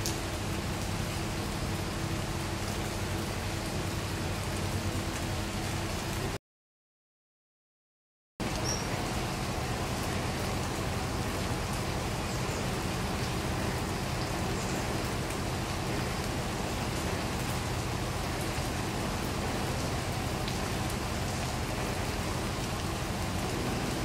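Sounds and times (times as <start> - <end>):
rain on wet paving: 0.0 - 6.4, 8.4 - 24.0.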